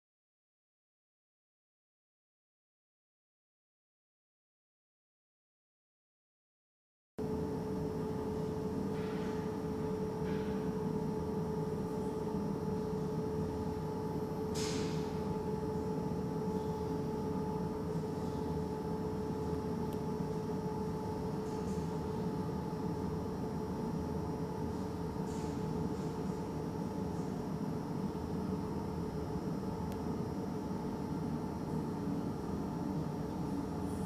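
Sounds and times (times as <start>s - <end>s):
steady mechanical hum: 7.2s - 34.0s.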